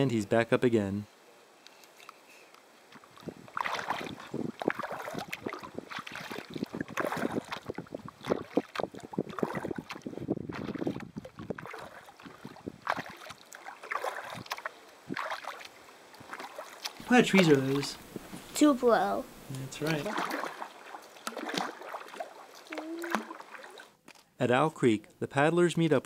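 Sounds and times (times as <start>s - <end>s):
water sloshing against hull: 2.8s - 18.7s, 19.7s - 24.2s
paddle splashes: 2.8s - 19.0s, 19.6s - 24.0s.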